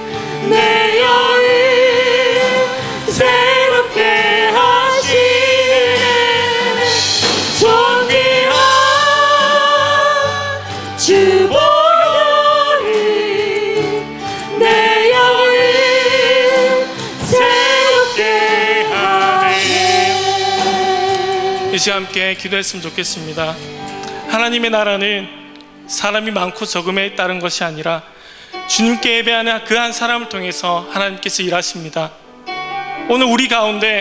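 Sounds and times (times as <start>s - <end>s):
acoustic guitar: 0.0s - 12.4s
group singing gospel song: 0.0s - 21.8s.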